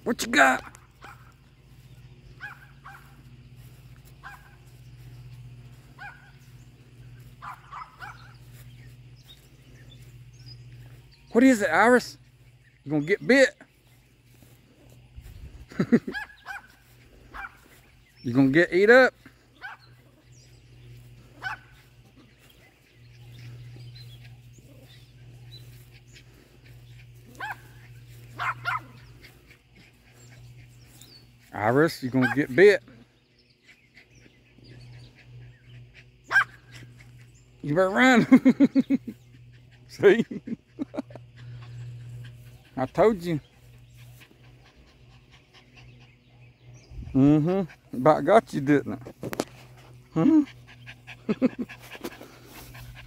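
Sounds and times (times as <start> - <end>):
small dog yapping: 7.4 - 8.3, 16.1 - 17.6, 21.4 - 21.8, 27.3 - 29.2, 36.3 - 36.8.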